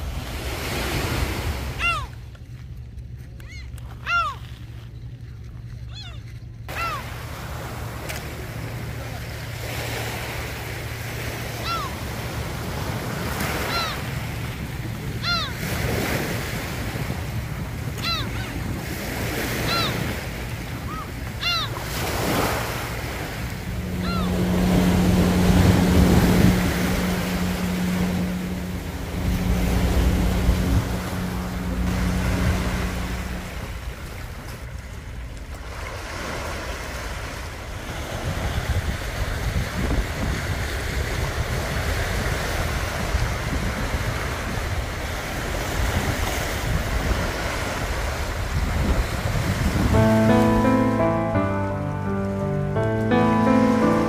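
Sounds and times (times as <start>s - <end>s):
sea waves on a pebble beach: 0.0s - 2.0s, 6.6s - 54.0s
low steady hum: 0.0s - 35.9s
wind rumbling on microphone: 10.4s - 50.0s
short high calls: 20.8s - 34.1s.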